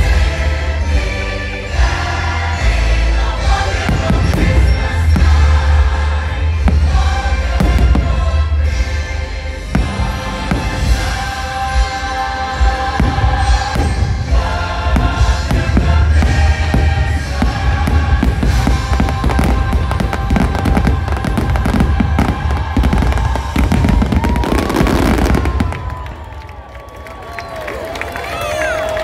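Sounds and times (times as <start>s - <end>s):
christmas music: 0.0s - 26.4s
fireworks bursts and booms: 3.4s - 26.6s
fireworks crackling: 3.7s - 12.1s, 12.9s - 26.7s.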